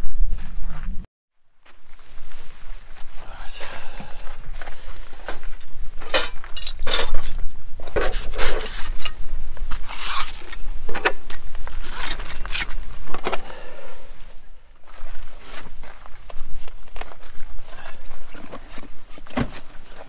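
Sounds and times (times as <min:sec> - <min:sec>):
metal cutlery clinking and clattering: 0:06.0 - 0:09.2, 0:11.3 - 0:12.8.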